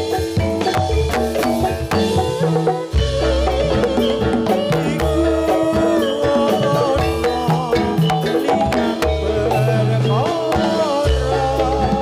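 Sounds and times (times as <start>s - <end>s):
drums: 0.0s - 12.0s
metallophone melody: 0.0s - 12.0s
wavering melody line: 0.0s - 12.0s.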